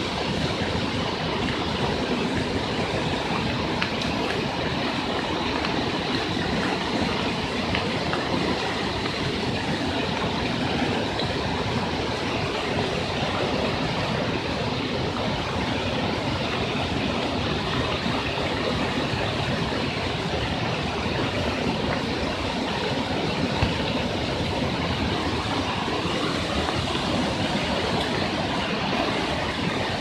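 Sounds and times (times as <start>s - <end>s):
floodwater rushing down a street: 0.0s - 30.0s.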